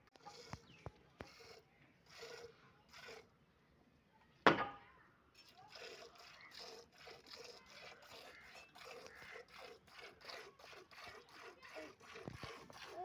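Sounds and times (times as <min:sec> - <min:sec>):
milk squirting into metal pot: 0:05.4 - 0:13.0.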